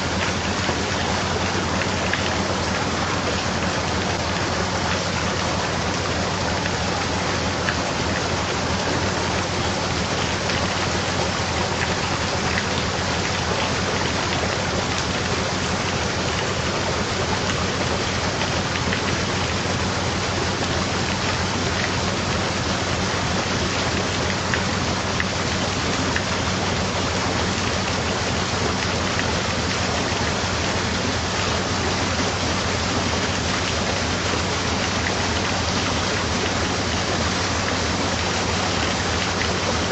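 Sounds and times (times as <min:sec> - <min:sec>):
water rushing through lock paddles: 0:00.0 - 0:39.9.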